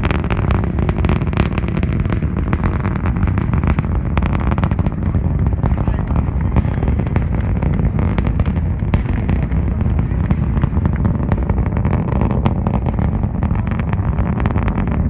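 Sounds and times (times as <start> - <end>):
rocket engines rumbling and crackling: 0.0 - 15.0.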